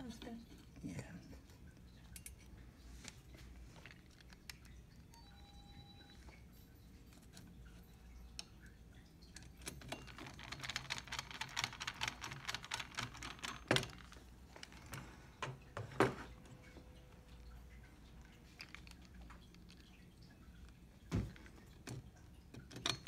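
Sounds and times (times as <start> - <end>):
small plastic parts clicking and rattling: 1.8 - 5.1, 9.3 - 16.2, 17.1 - 23.0.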